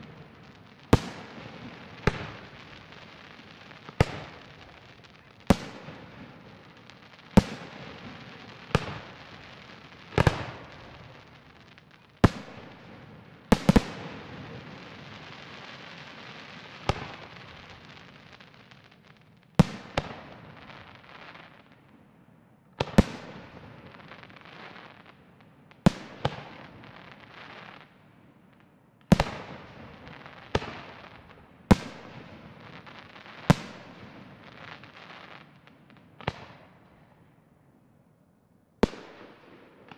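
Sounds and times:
firework hissing and crackling: 0:00.0 - 0:05.9.

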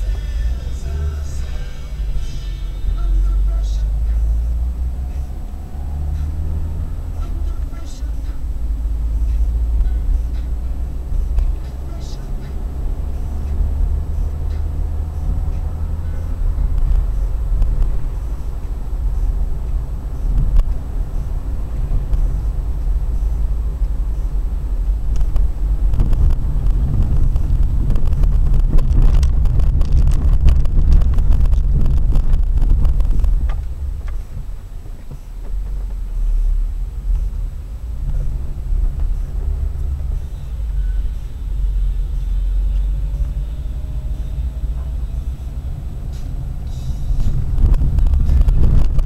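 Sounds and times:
car road and engine rumble: 0:00.0 - 0:49.0
knocks and rattles on rough road: 0:03.2 - 0:49.0.

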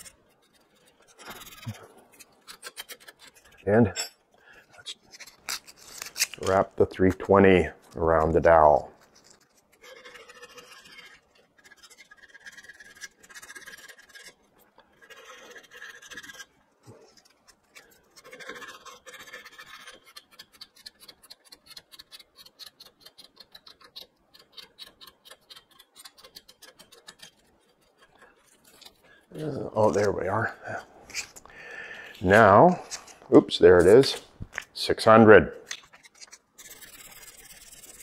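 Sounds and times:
sandpaper rustling: 0:36.0 - 0:38.0.

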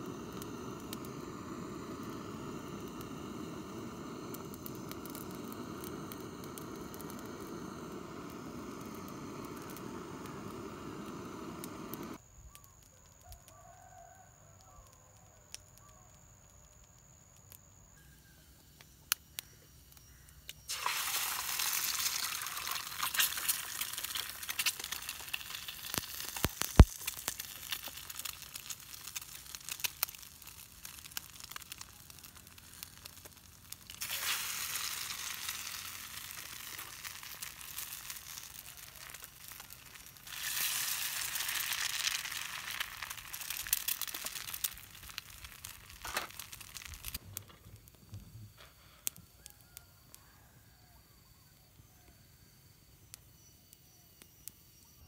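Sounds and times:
eggs sizzling in a pot: 0:00.0 - 0:12.2, 0:20.1 - 0:47.2
gas lighter hissing: 0:00.0 - 0:12.2
wood fire crackles: 0:00.0 - 0:18.0, 0:18.8 - 0:50.2
faint high insect tone: 0:00.0 - 0:55.0.

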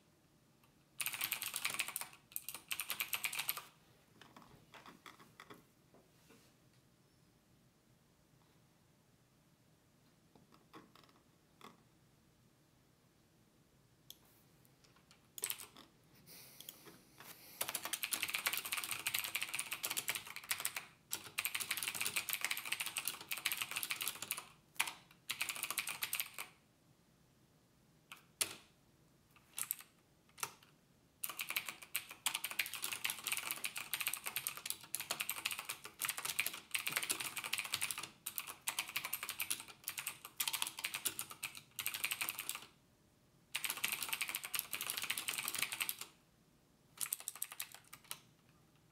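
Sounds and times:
fast typing on keyboard: 0:01.0 - 0:03.7, 0:15.4 - 0:15.9, 0:17.6 - 0:26.6, 0:28.1 - 0:28.6, 0:29.4 - 0:30.6, 0:31.2 - 0:42.8, 0:43.5 - 0:46.2, 0:47.0 - 0:48.3.

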